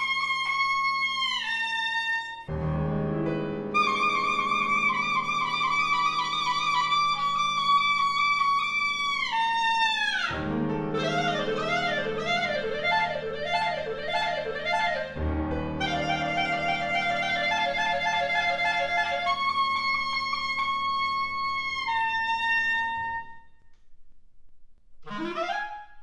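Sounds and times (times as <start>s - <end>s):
clarinet playing: 0.0s - 2.7s, 3.7s - 23.6s, 25.0s - 26.0s
piano chords: 2.5s - 9.5s, 10.2s - 23.3s.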